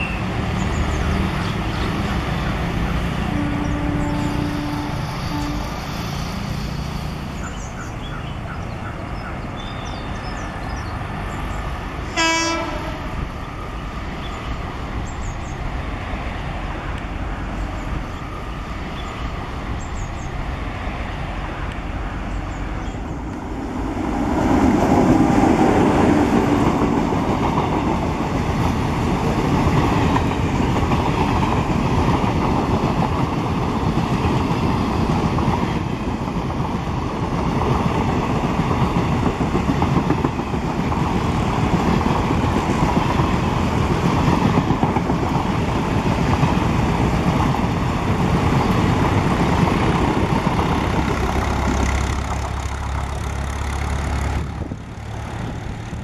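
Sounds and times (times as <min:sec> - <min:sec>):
train wheels running over rails: 0:00.0 - 0:56.0
locomotive horn: 0:03.2 - 0:05.8, 0:12.1 - 0:13.2.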